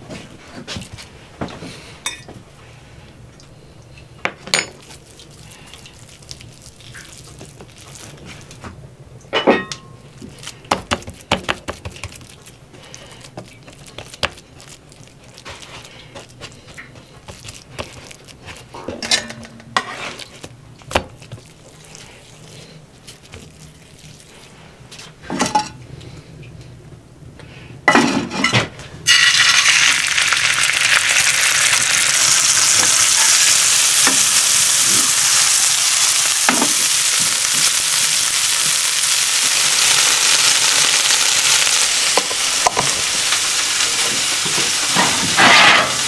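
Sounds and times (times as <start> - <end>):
dishes and utensils clinking: 2.0 - 2.4, 9.3 - 10.0, 18.8 - 20.0, 25.3 - 25.8, 44.9 - 46.0.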